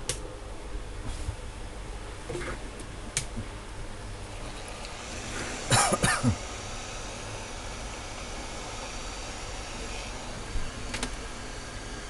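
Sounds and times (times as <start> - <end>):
hot air blower hiss: 3.6 - 12.0
person coughing: 5.7 - 6.4.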